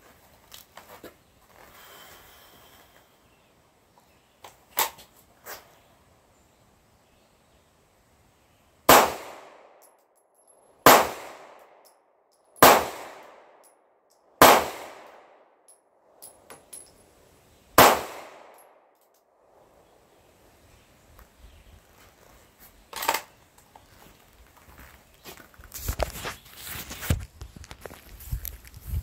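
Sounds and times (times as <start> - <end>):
pistol shots with echo: 8.9 - 9.8, 10.8 - 11.7, 12.6 - 13.7, 14.4 - 15.3, 17.8 - 18.7.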